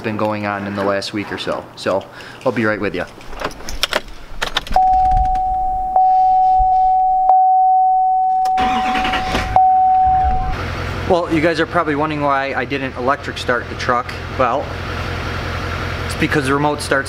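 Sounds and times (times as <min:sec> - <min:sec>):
electronic warning chime: 0:04.8 - 0:10.6
diesel engine cranking: 0:08.4 - 0:17.0
diesel engine idling: 0:08.6 - 0:17.0.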